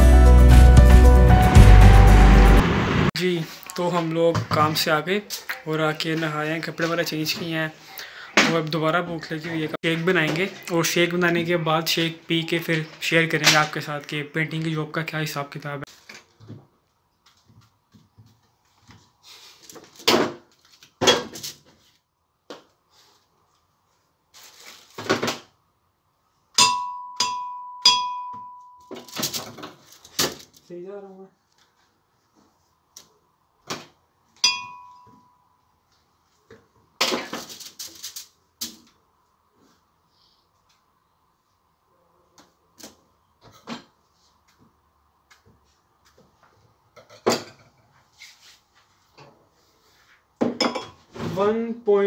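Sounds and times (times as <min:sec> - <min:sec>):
rustling and scraping: 0:17.3 - 0:22.1, 0:22.8 - 0:25.2, 0:29.0 - 0:30.7, 0:35.9 - 0:38.5, 0:47.8 - 0:50.3
glass clink: 0:26.6 - 0:29.1, 0:34.4 - 0:35.5.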